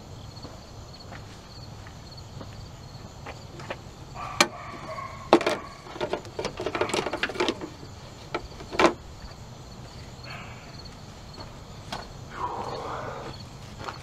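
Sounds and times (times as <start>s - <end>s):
plastic clicks and clatters: 5.3s - 9.0s
plastic cracking: 5.3s - 9.0s.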